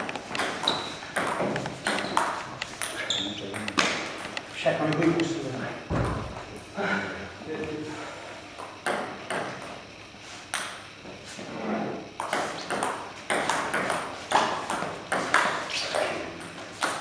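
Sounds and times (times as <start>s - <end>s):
table tennis ball knocks: 0.0s - 4.4s, 12.2s - 17.0s.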